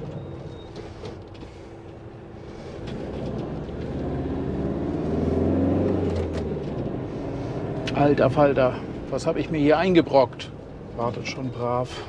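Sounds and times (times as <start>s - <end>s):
van engine running: 0.0s - 12.0s.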